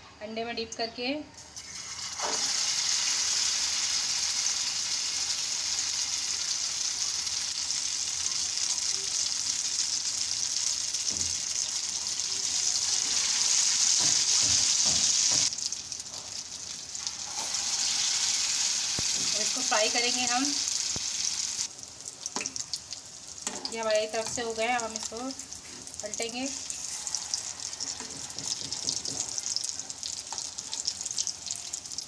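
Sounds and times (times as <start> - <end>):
food sizzling in hot oil: 1.4 - 32.0.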